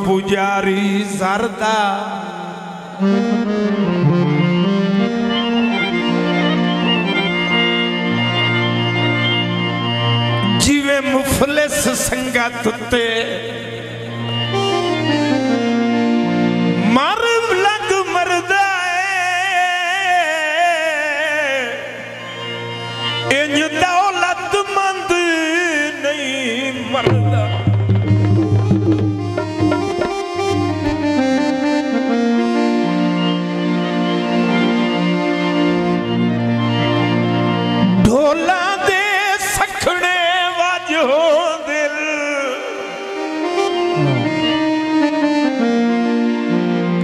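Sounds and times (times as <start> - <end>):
man singing wordless notes: 0.0 - 4.0, 10.4 - 14.3, 16.8 - 22.5, 23.2 - 32.0, 38.0 - 44.7
harmonium drone: 0.1 - 47.0
tabla strokes: 27.1 - 31.4.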